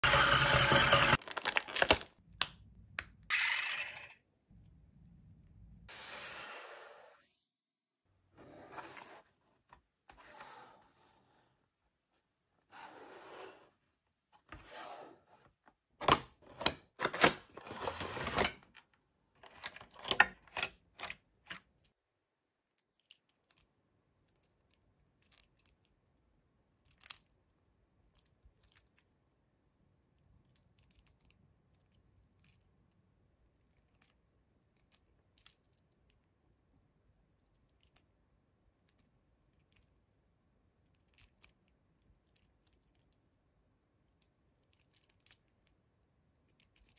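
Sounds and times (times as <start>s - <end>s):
packaging rustling: 1.2s - 2.1s
packaging crinkling and clicking: 1.2s - 2.2s.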